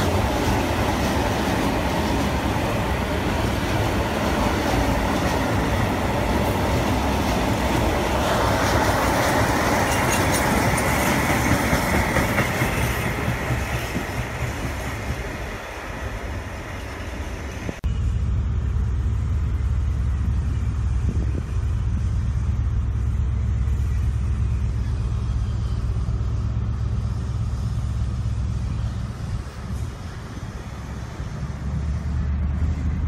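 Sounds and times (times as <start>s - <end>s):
freight wagons rolling on rails: 0.0s - 17.8s
diesel locomotive rumble: 0.0s - 33.0s.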